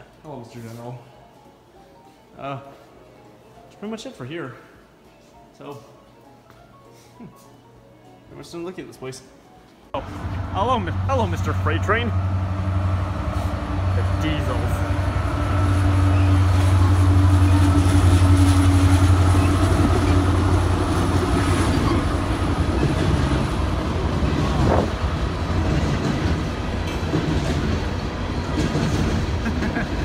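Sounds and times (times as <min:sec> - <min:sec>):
freight cars rumbling over rails: 0:10.0 - 0:30.0
locomotive engines droning: 0:10.0 - 0:30.0.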